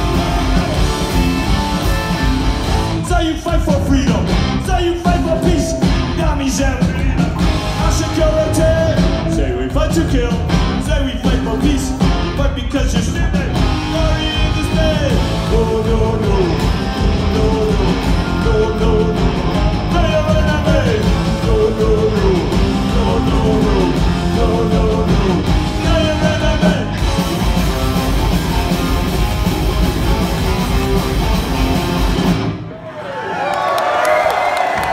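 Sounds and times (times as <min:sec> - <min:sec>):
punk rock band playing: 0:00.0 - 0:32.7
person singing: 0:03.0 - 0:27.1.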